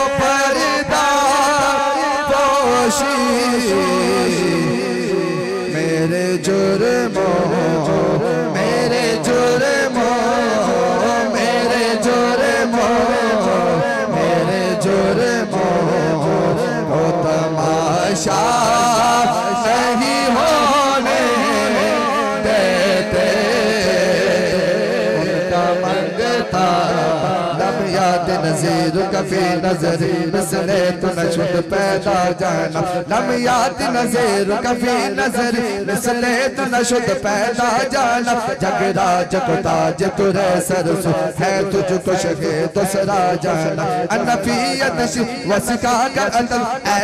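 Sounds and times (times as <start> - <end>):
man singing through microphone: 0.0 - 47.0.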